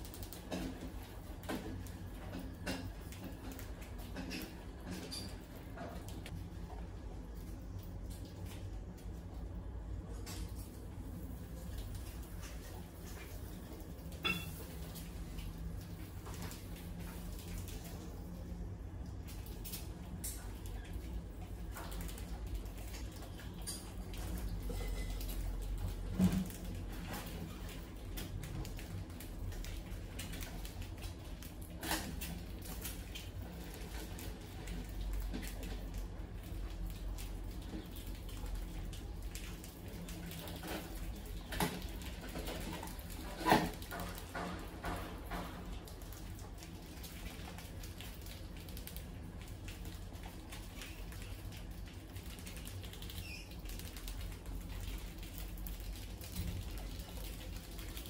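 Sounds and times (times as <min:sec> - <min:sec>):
mice claws scratching and clicking: 0:00.0 - 0:06.4, 0:19.1 - 0:58.0
low steady hum: 0:00.0 - 0:58.0.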